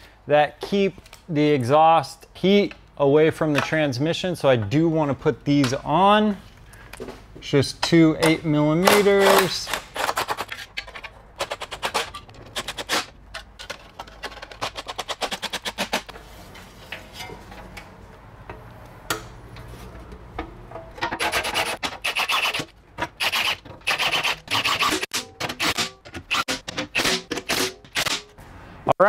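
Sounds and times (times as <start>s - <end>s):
impact wrench rattling: 20.9s - 28.3s.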